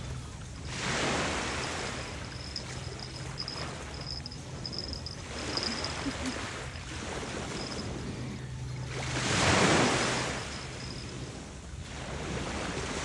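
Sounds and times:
small waves washing onto beach: 0.0 - 8.2, 8.9 - 13.0.

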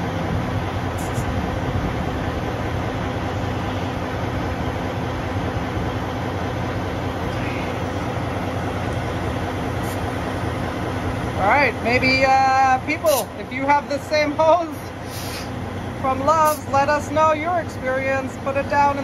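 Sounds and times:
compressed air hissing: 1.0 - 1.4, 9.7 - 10.2, 13.0 - 13.4, 14.9 - 15.6.

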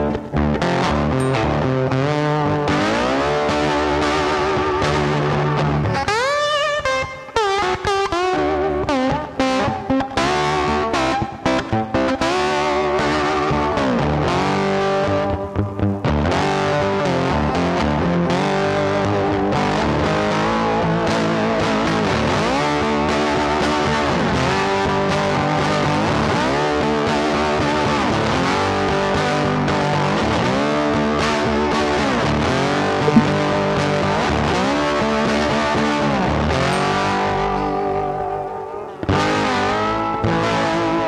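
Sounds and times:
plucked string melody with slides: 0.0 - 17.0, 31.0 - 41.0.

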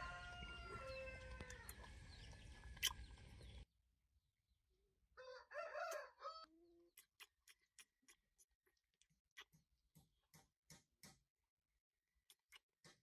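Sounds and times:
rooster crowing: 0.0 - 1.8, 5.2 - 6.5.

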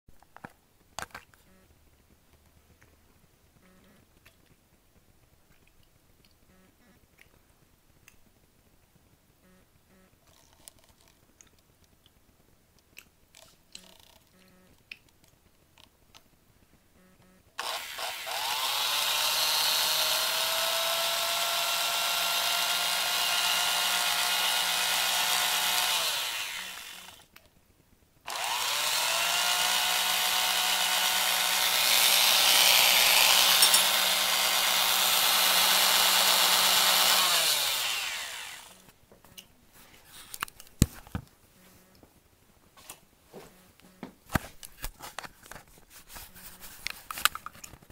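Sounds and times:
hand mixer motor whining: 17.6 - 27.3, 28.3 - 38.9.

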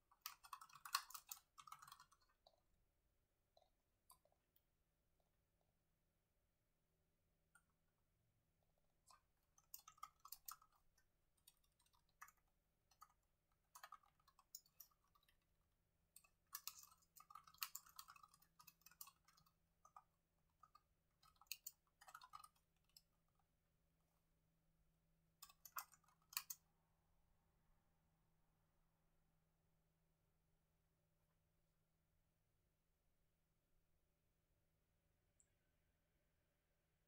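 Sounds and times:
typing on laptop keyboard: 0.0 - 2.7, 8.9 - 23.5, 25.3 - 26.7.

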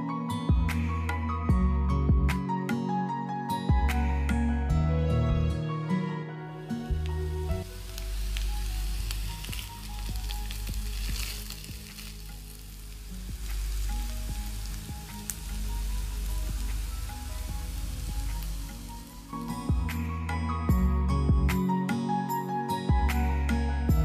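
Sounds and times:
soft background music: 0.0 - 24.0
potatoes sizzling in oil: 6.9 - 19.8.

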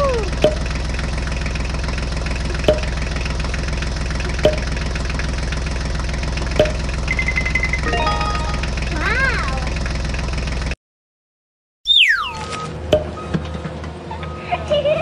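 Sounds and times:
tractor engine idling: 0.0 - 10.8
high beeps: 6.6 - 8.9, 11.9 - 12.7.

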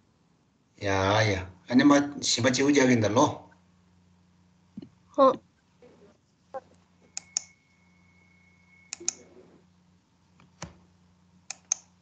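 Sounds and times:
low steady hum: 0.0 - 12.0
thin high tone: 6.6 - 9.6
computer mouse clicks: 7.1 - 7.5, 8.9 - 9.3, 11.5 - 11.9.

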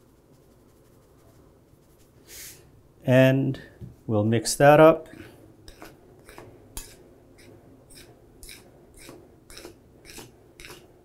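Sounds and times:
fork stirring dry flour: 5.6 - 10.9.

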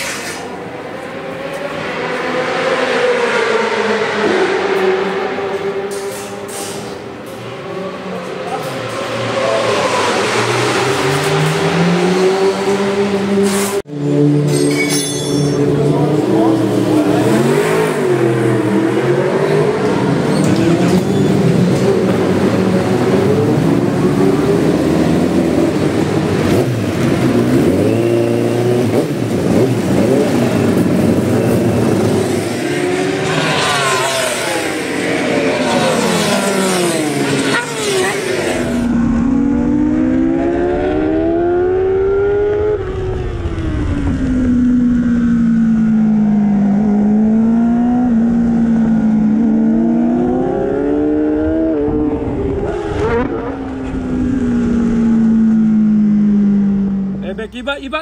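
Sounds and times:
motorcycle engine revving: 15.4 - 57.2
race bikes passing at speed: 15.6 - 39.3
motorcycle engine at full speed: 20.9 - 57.2.

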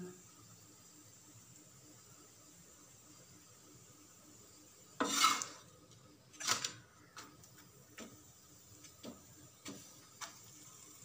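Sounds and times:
metal spatula scraping a pan: 4.9 - 5.7, 6.3 - 6.8.

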